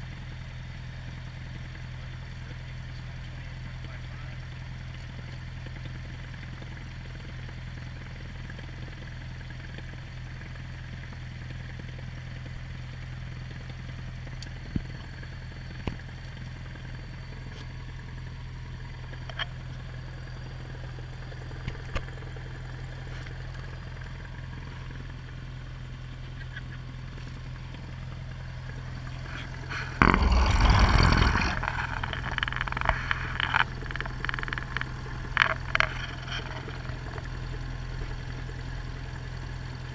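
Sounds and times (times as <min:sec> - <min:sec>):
aircraft engine idling: 0:16.3 - 0:30.1, 0:31.4 - 0:39.9
aircraft engine rumble: 0:18.1 - 0:39.9.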